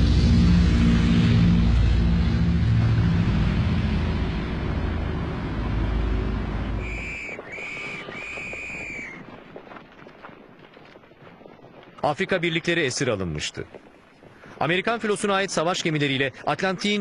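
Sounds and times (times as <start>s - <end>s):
propeller aircraft engines droning: 0.0s - 9.2s
short high whistle notes: 6.8s - 9.2s.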